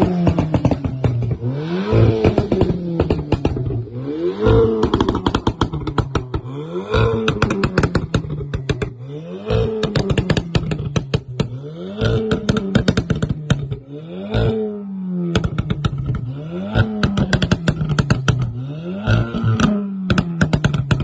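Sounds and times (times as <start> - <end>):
exhaust pops and crackles: 0.0 - 14.6, 15.2 - 21.0
car engine revving: 0.0 - 21.0.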